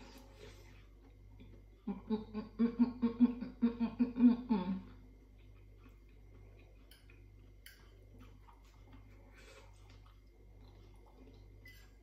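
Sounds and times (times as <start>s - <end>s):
woman humming mm-mm-mm: 1.8s - 5.0s
fork clicking against plate: 6.9s - 7.9s.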